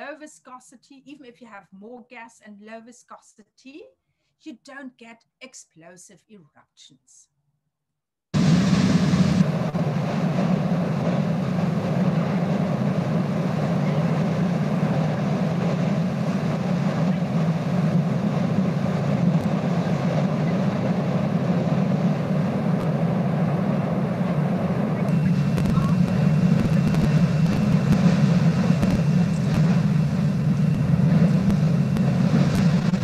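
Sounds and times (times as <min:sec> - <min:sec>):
deep roar of churning lava: 0:08.4 - 0:33.0.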